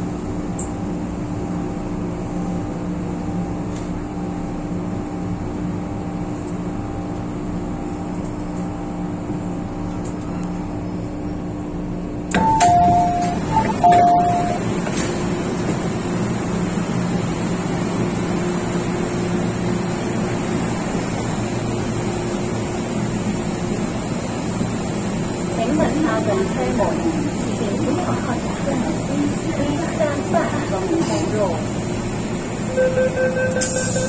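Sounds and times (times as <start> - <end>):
train interior hum: 0.0 - 34.0
two-note electronic door chime: 12.4 - 14.6.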